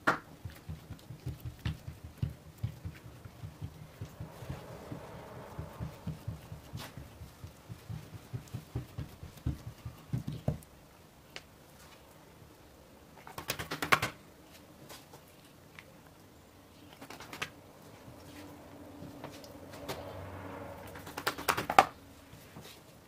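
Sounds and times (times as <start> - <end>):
hands patting dough on wood: 0.0 - 12.0, 13.2 - 15.2, 20.9 - 22.9.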